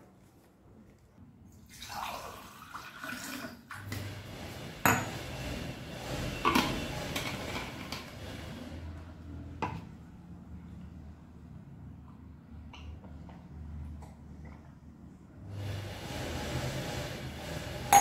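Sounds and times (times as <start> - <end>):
water pouring: 1.6 - 4.0.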